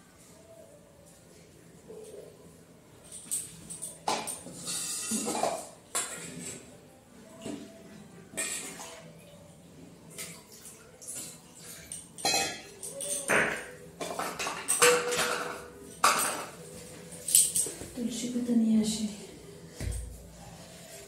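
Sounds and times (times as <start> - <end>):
metal vessels clinking: 3.0 - 6.8, 11.1 - 17.8.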